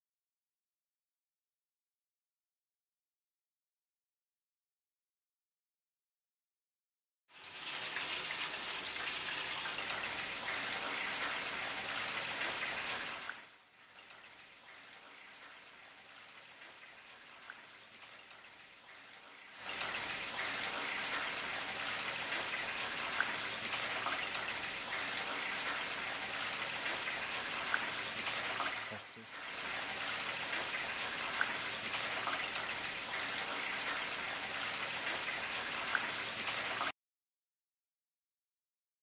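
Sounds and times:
potatoes sizzling in deep fryer: 7.3s - 36.9s.

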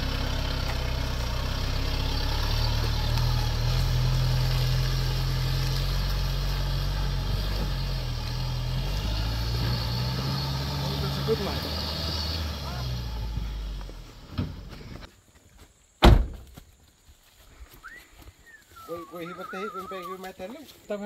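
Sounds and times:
truck engine running: 0.0s - 15.1s.

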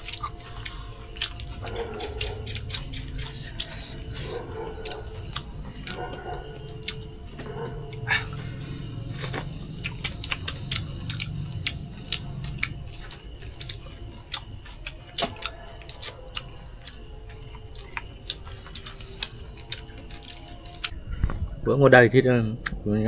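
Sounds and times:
chewing clicks and smacks: 0.0s - 8.4s, 9.1s - 21.0s.

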